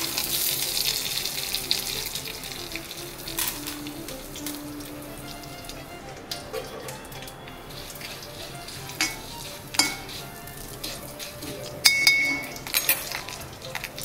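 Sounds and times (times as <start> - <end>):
food sizzling in oil: 0.0 - 14.0
metal spatula clinking on pan: 9.0 - 10.2, 11.8 - 13.3.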